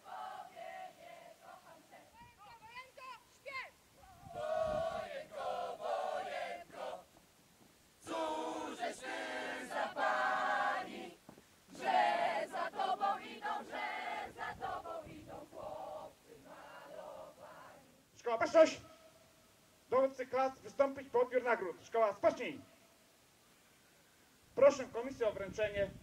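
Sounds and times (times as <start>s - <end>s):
group singing while marching: 0.0s - 2.2s, 4.2s - 7.2s, 8.0s - 18.0s.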